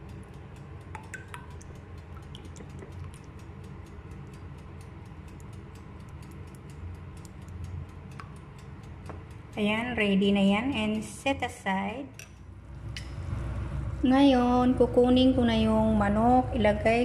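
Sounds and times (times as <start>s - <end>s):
low steady hum: 0.0s - 17.0s
brush tapping and scraping bowl: 1.0s - 3.4s.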